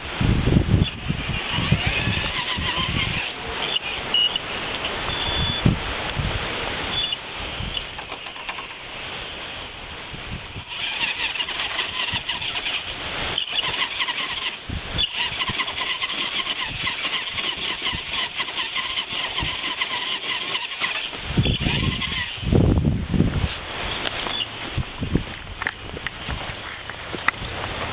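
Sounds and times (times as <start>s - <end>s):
electric motor whining: 0.7s - 5.6s, 10.4s - 22.8s
low rumbling: 21.0s - 27.9s.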